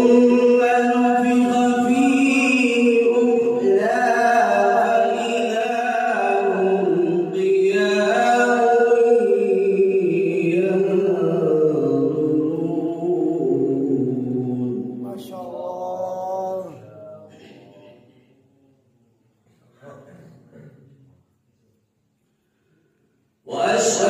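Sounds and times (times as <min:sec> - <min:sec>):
man reciting melodically: 0:00.0 - 0:18.3, 0:23.4 - 0:24.0.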